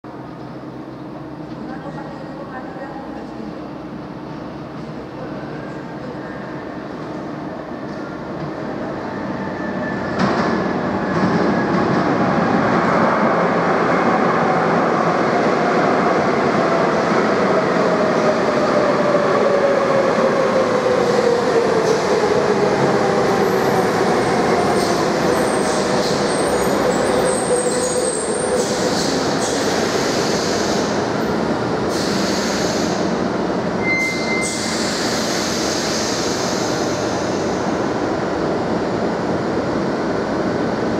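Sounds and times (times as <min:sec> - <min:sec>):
underground train braking: 0:00.1 - 0:40.9.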